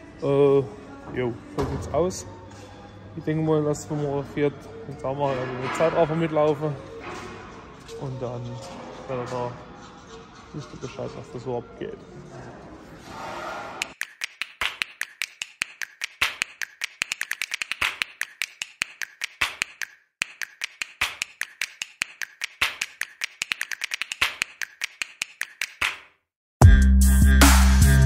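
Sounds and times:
hand tools clicking on metal: 0:13.8 - 0:25.9
loud music: 0:26.6 - 0:28.0.

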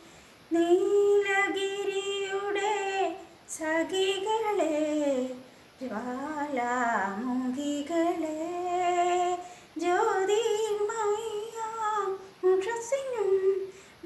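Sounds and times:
woman breathing: 0:00.0 - 0:00.5, 0:09.4 - 0:09.8, 0:13.6 - 0:14.0
woman singing unaccompanied: 0:00.5 - 0:13.8.

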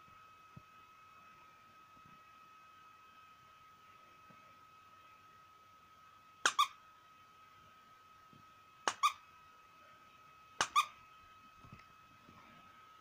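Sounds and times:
dog toy squeaking: 0:06.4 - 0:06.8, 0:08.9 - 0:09.2, 0:10.6 - 0:11.0.

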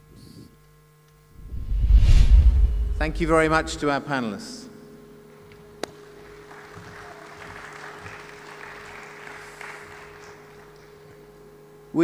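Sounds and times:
steady electrical hum: 0:00.0 - 0:12.0
faint audience applause: 0:05.9 - 0:11.4.

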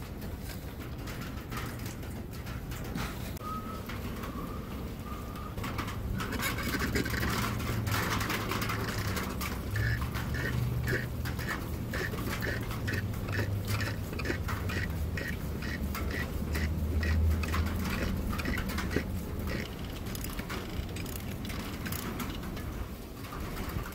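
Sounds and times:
small clicks: 0:05.6 - 0:22.7
steady low hum: 0:05.6 - 0:22.8
rag wiping housing: 0:05.7 - 0:22.6.

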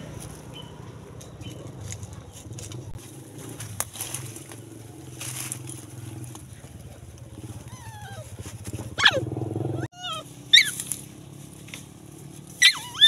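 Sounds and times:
dog yelping: 0:07.5 - 0:10.9, 0:12.6 - 0:13.0.

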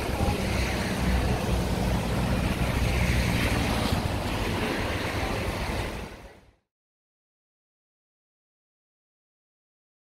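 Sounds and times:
car tyres hissing on wet road: 0:00.0 - 0:06.4
rainwater running into storm drain: 0:00.0 - 0:06.4.

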